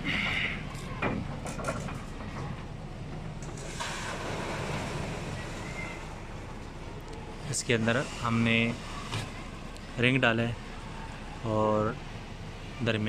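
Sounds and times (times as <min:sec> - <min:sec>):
engine running steadily: 0:00.0 - 0:13.0
knocks and clatter: 0:00.8 - 0:05.0.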